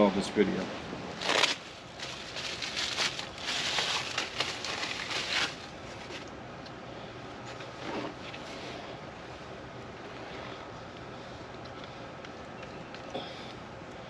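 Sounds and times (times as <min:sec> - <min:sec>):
plastic bag crinkling: 0:01.2 - 0:06.3.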